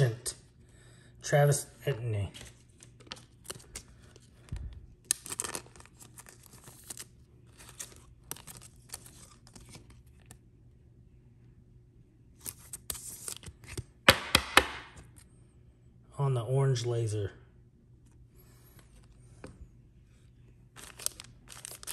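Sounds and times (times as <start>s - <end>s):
foil wrappers crinkling: 2.5s - 10.4s, 20.7s - 21.9s.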